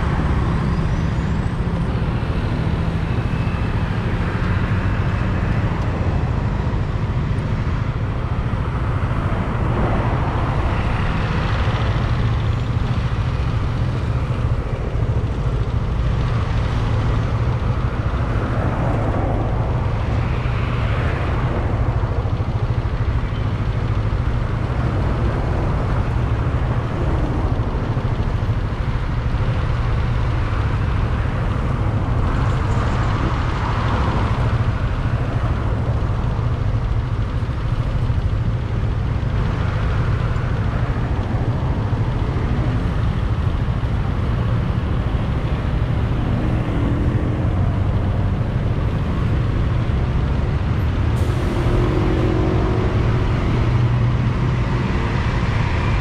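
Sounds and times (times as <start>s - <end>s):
motor scooter rumble: 0.0s - 56.0s
vehicles passing: 0.0s - 56.0s.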